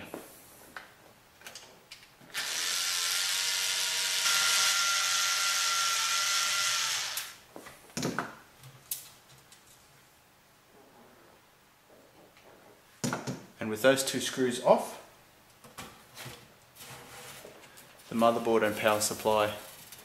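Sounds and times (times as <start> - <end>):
electric screwdriver running: 2.3 - 7.4.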